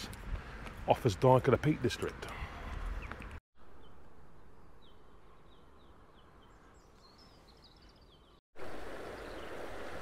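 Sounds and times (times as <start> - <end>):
songbird chirping: 2.6 - 10.0.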